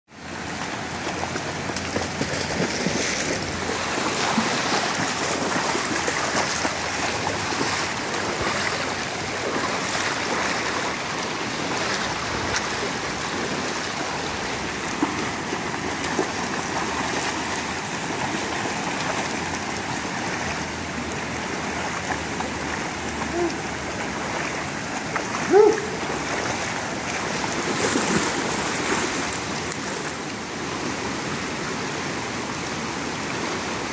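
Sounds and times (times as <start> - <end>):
river rapids rushing: 0.2 - 33.9
dogs splashing through water: 0.4 - 31.0.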